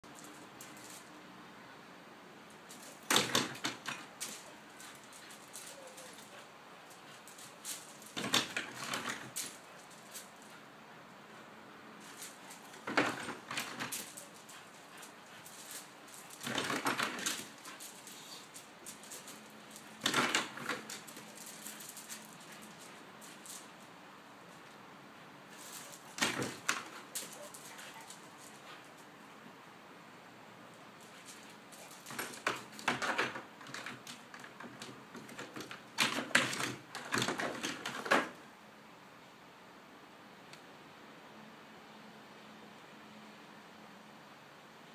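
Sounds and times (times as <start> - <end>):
dog claws scraping and tapping: 2.6 - 10.6, 12.0 - 23.8, 25.5 - 29.0, 31.0 - 38.4.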